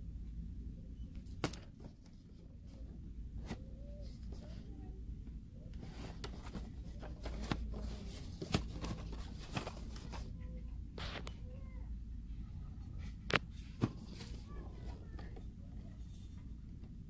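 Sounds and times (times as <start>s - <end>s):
low steady hum: 0.0s - 17.0s
cardboard scraping: 5.8s - 10.3s.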